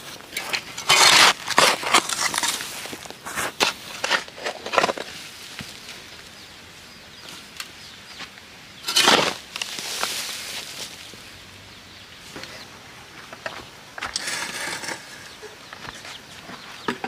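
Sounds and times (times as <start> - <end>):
hoe chopping stony soil: 0.4 - 5.1, 8.8 - 10.2.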